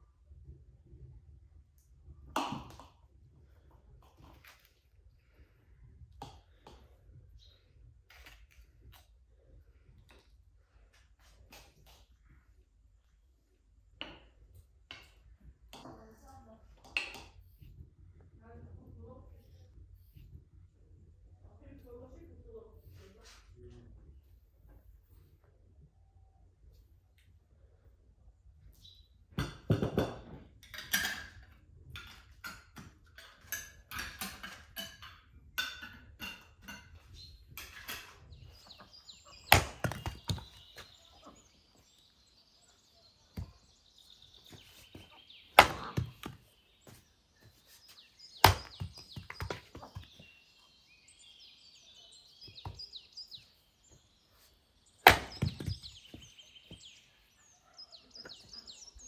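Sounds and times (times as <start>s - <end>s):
chopping knocks: 45.6s - 46.4s, 48.4s - 50.0s, 55.1s - 55.9s.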